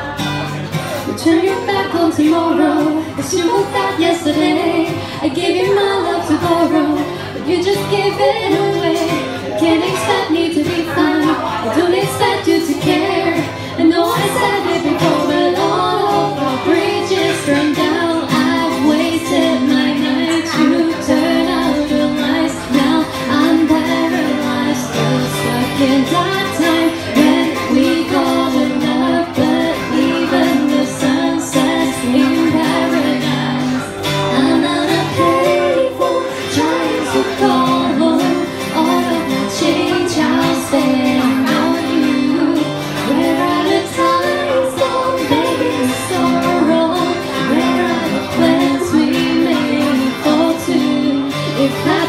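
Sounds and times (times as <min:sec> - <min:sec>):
acoustic guitar strumming: 0:00.0 - 0:52.0
woman singing: 0:01.0 - 0:52.0.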